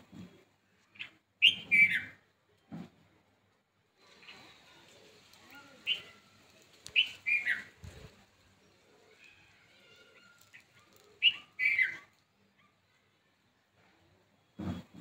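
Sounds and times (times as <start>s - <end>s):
faint background birdsong: 0.0s - 15.0s
birds chirping loudly: 0.9s - 2.2s, 5.6s - 12.2s.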